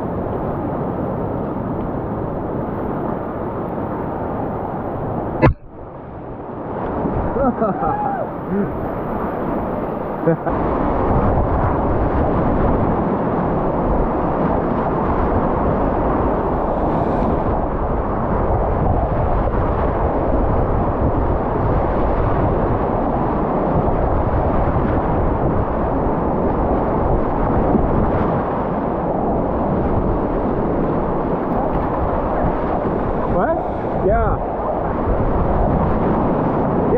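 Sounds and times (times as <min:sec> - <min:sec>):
whitewater rapids rushing: 0:07.3 - 0:10.6.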